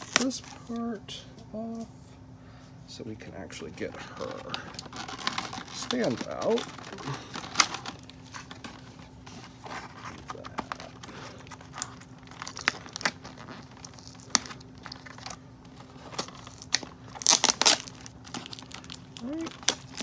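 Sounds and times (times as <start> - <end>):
cardboard packaging crinkling: 0.0 - 0.9, 3.6 - 20.0.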